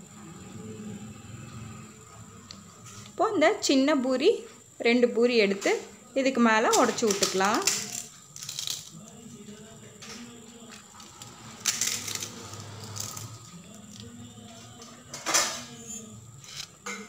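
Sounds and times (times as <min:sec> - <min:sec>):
crisp snacks crunching: 0:07.2 - 0:09.8, 0:10.6 - 0:14.5.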